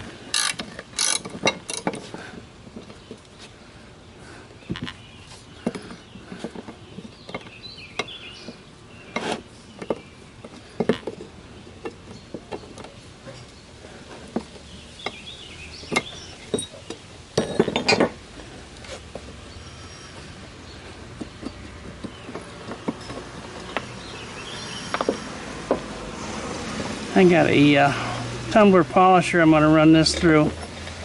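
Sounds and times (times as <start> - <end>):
metal tools clinking on iron: 0.3 - 2.2, 15.9 - 18.2, 21.4 - 23.9
clatter of steel parts: 0.3 - 3.3, 15.8 - 18.2, 21.2 - 23.9.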